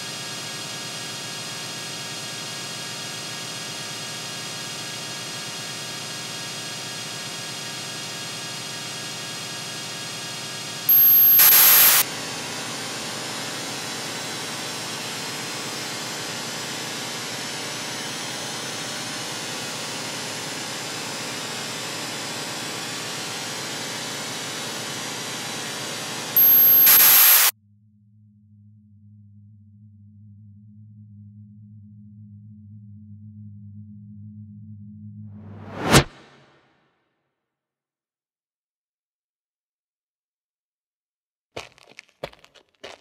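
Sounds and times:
electronic noise drone: 0:10.9 - 0:12.0, 0:26.3 - 0:27.5
static burst: 0:10.9 - 0:12.0, 0:26.4 - 0:27.5.

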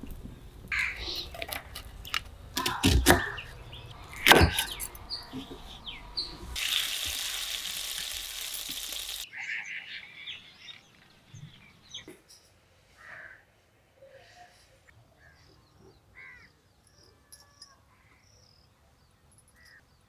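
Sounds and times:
steady hiss: 0:06.5 - 0:09.3
faint bird chirps: 0:14.0 - 0:20.0.

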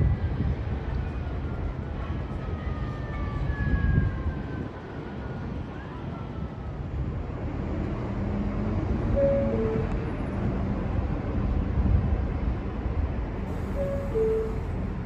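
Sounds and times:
wheels rumbling on rail: 0:00.0 - 0:15.0
subway train motor whine: 0:09.1 - 0:10.6, 0:13.4 - 0:15.0.

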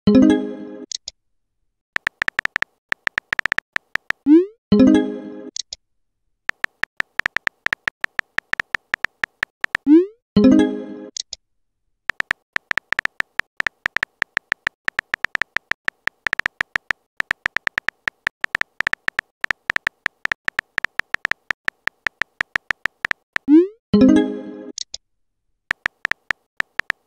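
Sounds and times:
keyboard typing clicks: 0:02.0 - 0:04.4, 0:06.5 - 0:10.0, 0:12.1 - 0:23.6, 0:25.7 - 0:27.0.

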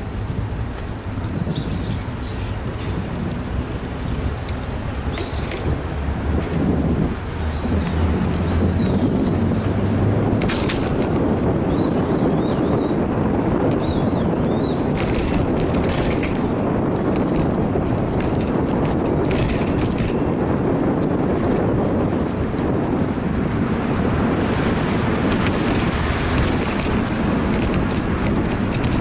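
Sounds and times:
road rumble: 0:00.0 - 0:29.0
wind noise: 0:00.0 - 0:29.0
light rattling clicks from bike: 0:04.0 - 0:05.8, 0:10.3 - 0:11.8, 0:14.6 - 0:23.2, 0:24.9 - 0:29.0.

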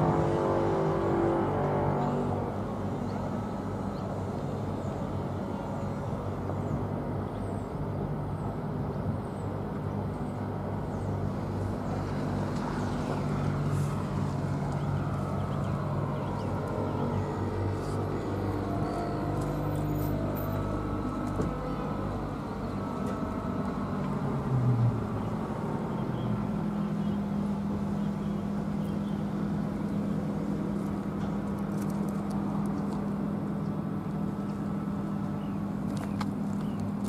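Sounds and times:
traffic engines humming: 0:00.0 - 0:37.0.

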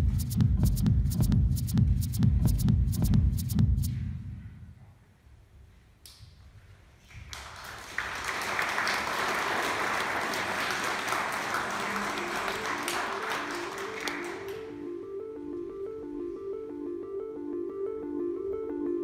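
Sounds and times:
audience applauding: 0:07.1 - 0:14.9.

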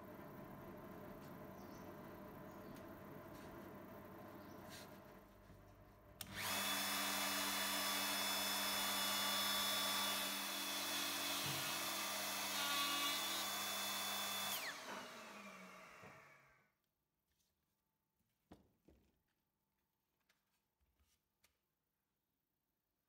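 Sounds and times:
router whining and spinning down: 0:06.2 - 0:16.7.

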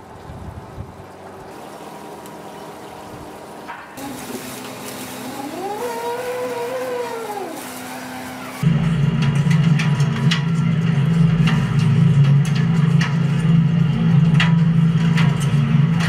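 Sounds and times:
low mechanical hum: 0:00.1 - 0:16.0
hydraulic winch whining: 0:04.0 - 0:08.7.

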